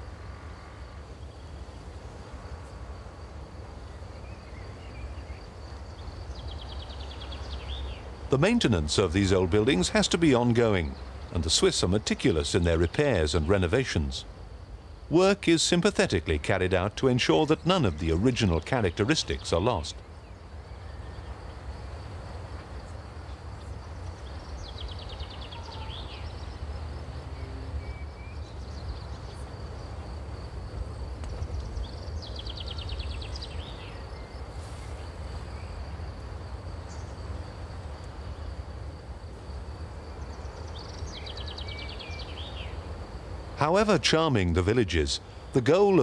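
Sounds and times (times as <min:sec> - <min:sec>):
low rumble and hiss: 0:00.0 - 0:46.0
songbird trilling: 0:31.5 - 0:34.4, 0:40.2 - 0:42.8.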